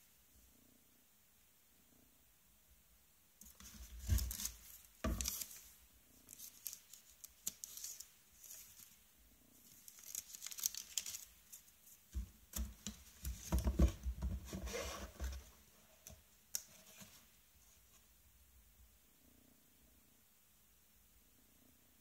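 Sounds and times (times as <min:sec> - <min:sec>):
paper sleeve crinkling: 0:03.5 - 0:09.0, 0:09.6 - 0:12.0
cardboard box rustling and knocking: 0:03.6 - 0:05.4, 0:12.2 - 0:15.6.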